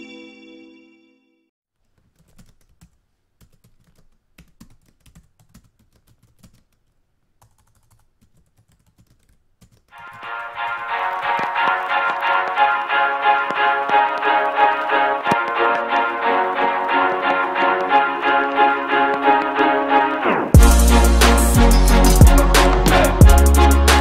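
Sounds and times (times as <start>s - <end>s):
music chord: 0.0s - 1.5s, 10.2s - 24.0s
typing on computer keyboard: 1.8s - 12.3s
loud music: 10.2s - 24.0s.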